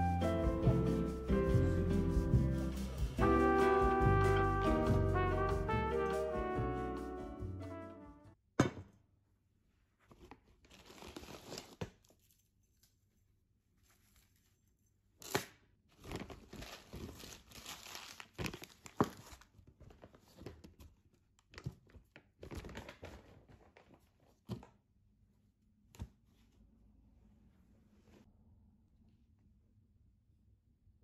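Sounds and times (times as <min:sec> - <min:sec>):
objects knocking on tabletop: 0:08.6 - 0:09.0
newspaper crinkling and rustling: 0:16.0 - 0:20.6.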